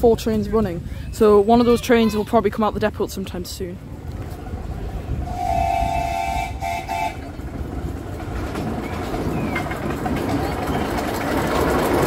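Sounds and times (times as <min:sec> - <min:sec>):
train rumble: 0:00.0 - 0:12.0
locomotive toot: 0:05.2 - 0:07.5.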